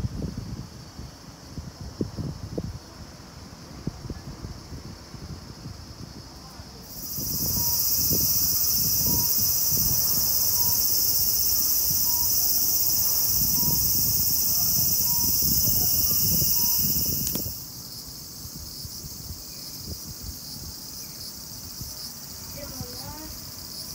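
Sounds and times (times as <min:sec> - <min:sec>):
low wind rumble: 0:00.0 - 0:23.8
insect chorus shrilling: 0:06.8 - 0:23.9.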